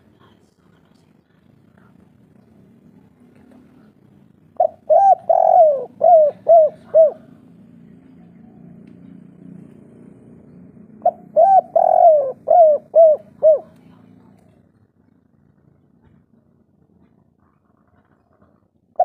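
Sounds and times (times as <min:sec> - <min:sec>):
faint low hum: 0:00.0 - 0:19.0
dove cooing: 0:04.0 - 0:07.5, 0:10.8 - 0:14.0.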